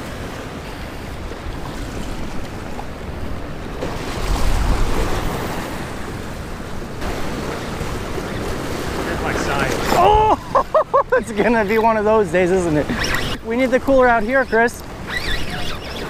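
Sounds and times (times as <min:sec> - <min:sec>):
wind on microphone: 0:00.0 - 0:10.6
surf washing against rocks: 0:00.0 - 0:16.0.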